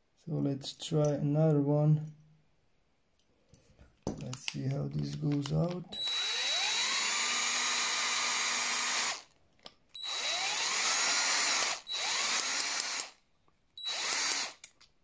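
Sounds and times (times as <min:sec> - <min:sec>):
cordless drill motor whining: 0:05.9 - 0:09.3, 0:10.0 - 0:13.2, 0:13.8 - 0:14.7.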